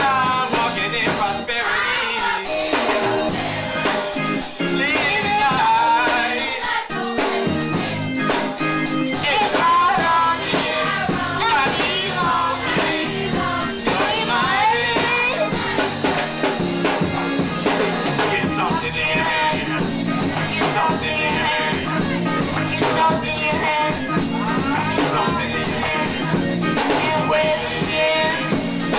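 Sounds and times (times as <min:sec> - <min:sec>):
band beat: 0:00.0 - 0:28.9
choir singing gospel: 0:00.0 - 0:28.9
keyboard: 0:00.0 - 0:28.9
girl singing lead into microphone: 0:09.2 - 0:15.9, 0:20.4 - 0:28.6.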